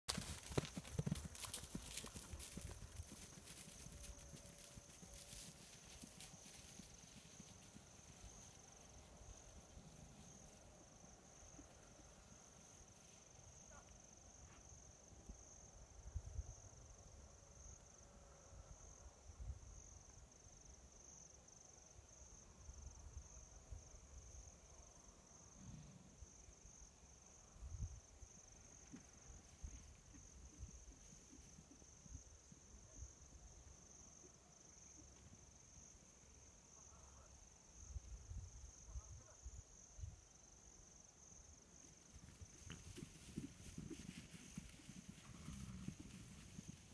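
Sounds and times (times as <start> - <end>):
horses trotting on turf: 0.1 - 10.6, 41.8 - 46.9
high-pitched insect trill: 0.1 - 11.6.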